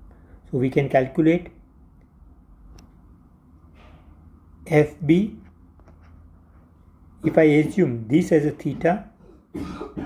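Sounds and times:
soft breath: 0.0s - 0.5s
low room hum: 0.0s - 10.0s.

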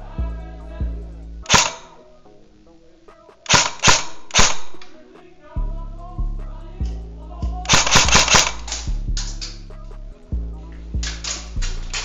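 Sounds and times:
background music: 0.0s - 12.0s
airsoft gun shots: 1.5s - 2.0s, 3.5s - 4.9s, 7.7s - 9.6s.

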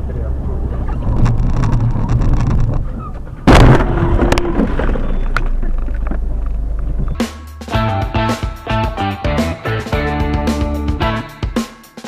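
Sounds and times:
vehicle rumble: 0.0s - 7.8s
loud car crash: 3.4s - 5.8s.

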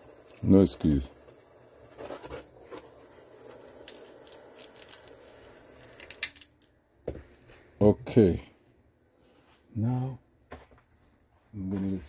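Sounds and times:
soldering iron hissing: 0.0s - 6.4s.

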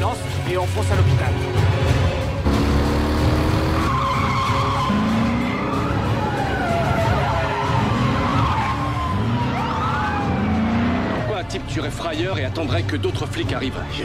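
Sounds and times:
car engines running hard: 2.2s - 11.8s.

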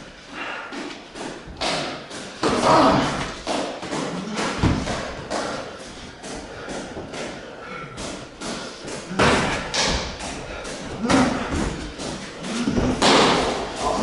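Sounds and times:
gloved punches and kicks landing: 1.5s - 5.6s, 8.1s - 14.0s.

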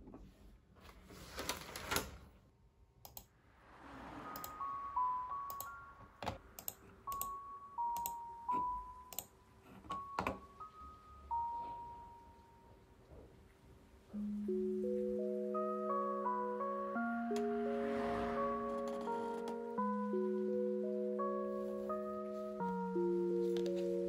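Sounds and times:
computer mouse clicking: 3.0s - 3.3s, 4.3s - 4.6s, 5.5s - 5.7s, 6.6s - 7.4s, 8.0s - 8.2s
soft background music: 3.9s - 13.4s, 14.0s - 24.0s.

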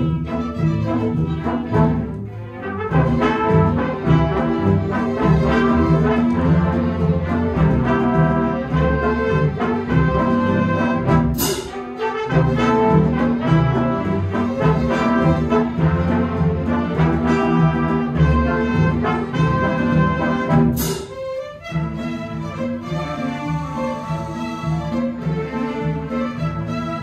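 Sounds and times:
symphony orchestra playing: 0.0s - 27.0s
sharp bright orchestral hit: 11.3s - 12.0s, 20.7s - 21.4s.

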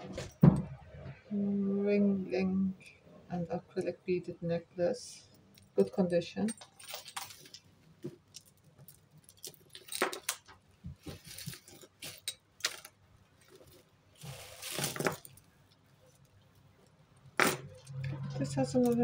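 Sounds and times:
jewellery clinking and jangling: 5.5s - 15.5s, 17.4s - 19.0s.

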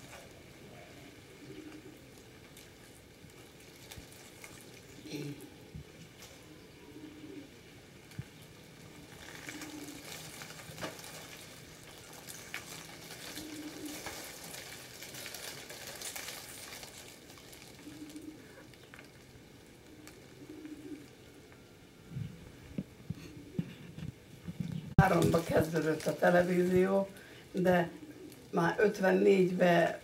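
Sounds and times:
yarn rustling: 9.0s - 19.2s.

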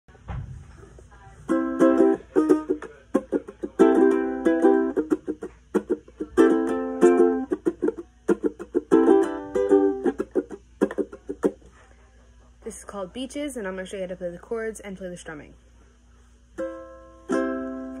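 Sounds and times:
ukulele strumming chords: 1.4s - 11.7s, 16.6s - 18.0s.

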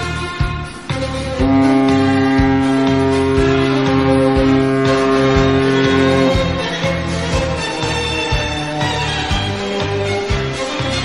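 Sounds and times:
background music with beat: 0.0s - 11.0s
low ship horn tone: 0.0s - 11.0s.

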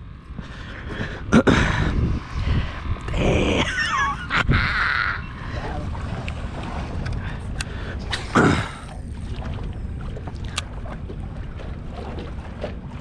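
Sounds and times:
wind on microphone: 0.0s - 13.0s
water against boat hull: 3.7s - 13.0s.

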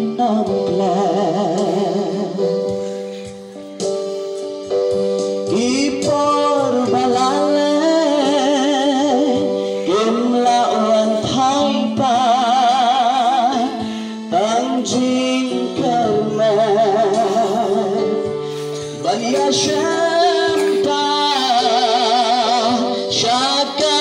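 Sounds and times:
person singing with vibrato: 0.0s - 24.0s
sustained instrumental chords: 12.0s - 24.0s.

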